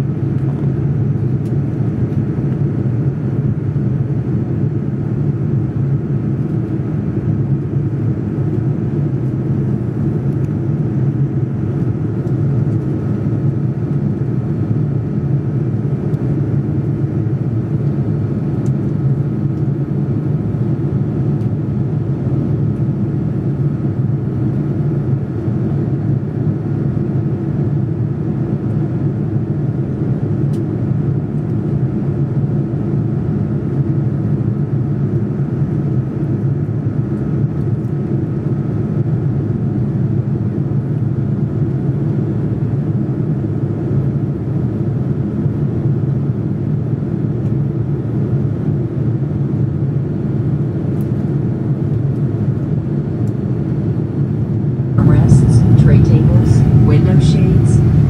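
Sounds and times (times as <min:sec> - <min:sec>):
engine and airflow rush: 0:00.0 - 0:32.0, 0:50.2 - 0:58.0
faint steady whine: 0:54.9 - 0:58.0.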